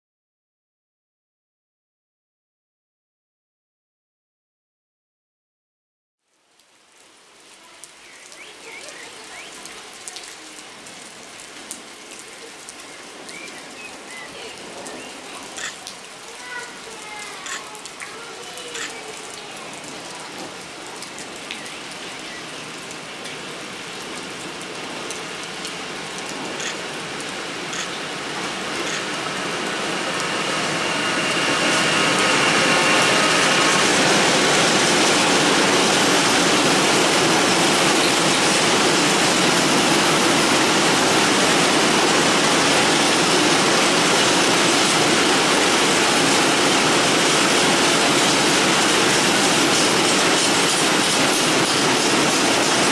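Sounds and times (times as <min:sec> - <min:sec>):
rain pattering: 0:06.2 - 0:52.9
freight train passing: 0:12.6 - 0:52.9
train wheel rumble: 0:25.9 - 0:52.9.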